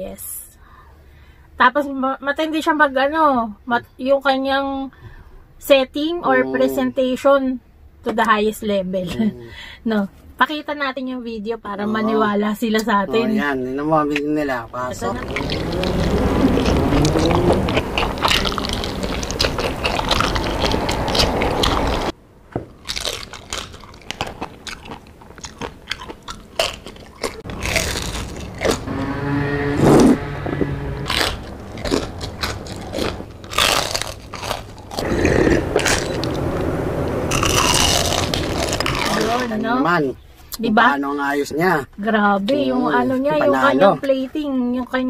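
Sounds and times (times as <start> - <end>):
crunching and chewing fried food: 14.9 - 29.1, 31.0 - 36.7, 37.3 - 39.6.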